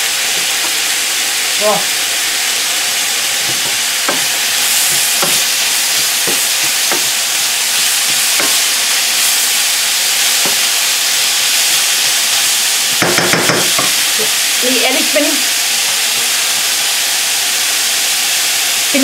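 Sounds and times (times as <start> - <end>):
food sizzling in frying pan: 0.0 - 19.0
wooden spatula knocking and scraping: 3.4 - 7.2, 7.8 - 8.6.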